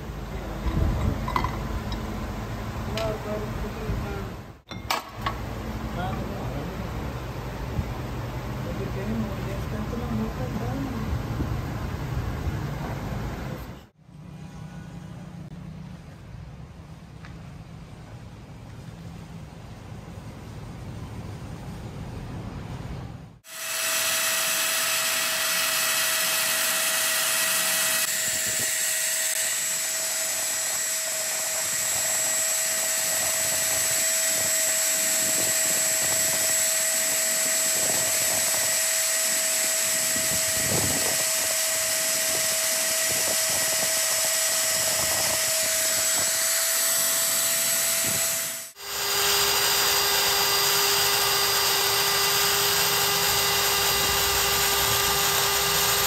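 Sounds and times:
drill press motor whining: 0:23.4 - 0:56.0.

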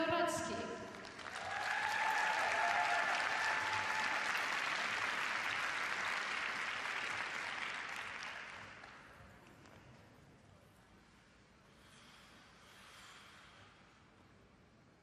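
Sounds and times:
audience applause: 0:00.9 - 0:09.1.

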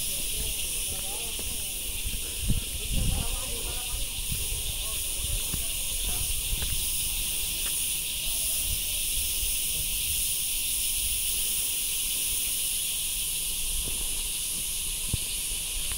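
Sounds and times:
high-pitched insect chorus: 0:00.0 - 0:15.9.

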